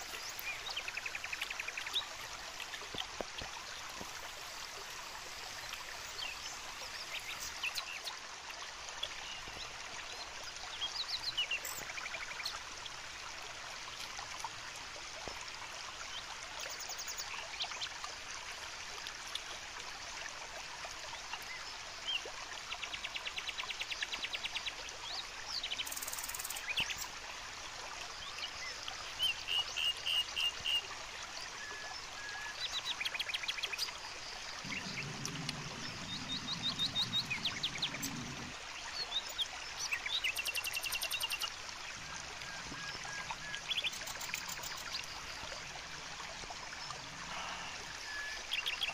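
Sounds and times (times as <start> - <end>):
rushing water: 0.0 - 48.9
birds chirping and trilling: 34.6 - 41.5.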